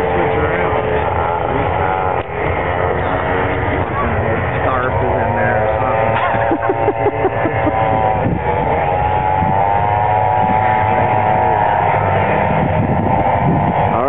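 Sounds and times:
snowmobile engines whining: 0.0 - 14.0.

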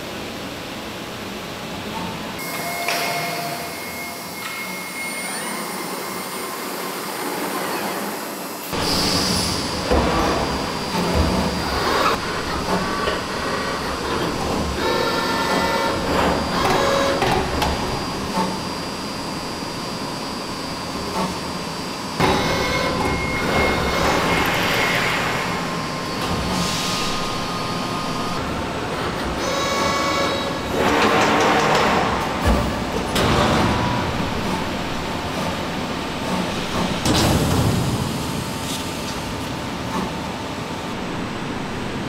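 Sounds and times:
steady machine noise: 2.4 - 42.0.

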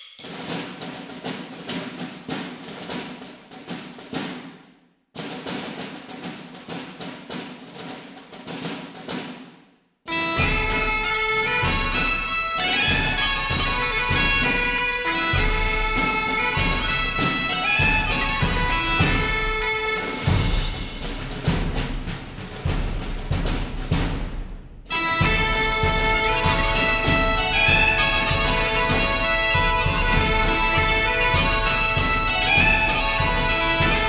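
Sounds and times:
percussive tapping music: 10.2 - 34.0.

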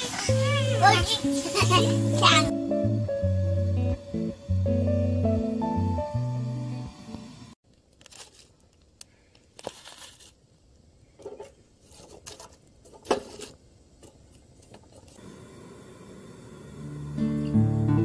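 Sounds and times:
tongs scraping in fire pit: 11.2 - 15.2.

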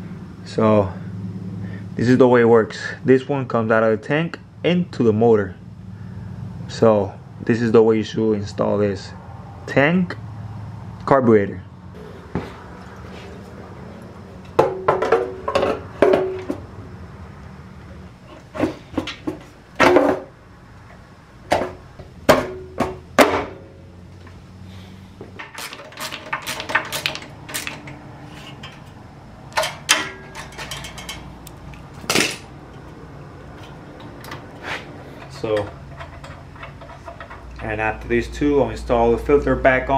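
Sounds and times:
plastic and metal parts clattering: 25.4 - 32.5, 33.6 - 37.8.

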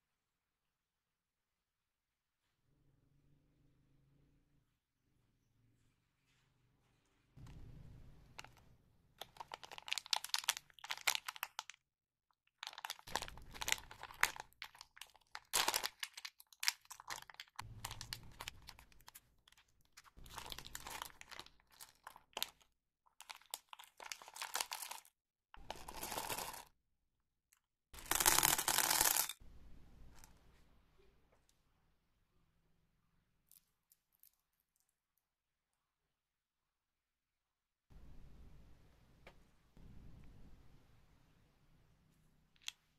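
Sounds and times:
plastic wrappers crinkling and tearing: 9.2 - 11.8, 12.5 - 26.7.

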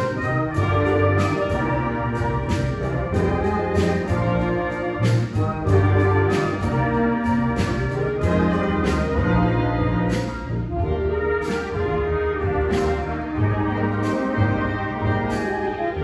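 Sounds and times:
orchestral brass: 0.0 - 16.0
orchestral strings: 0.0 - 16.0.

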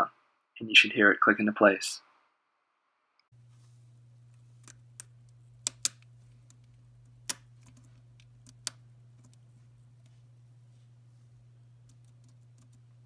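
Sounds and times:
low steady hum: 3.3 - 13.0.

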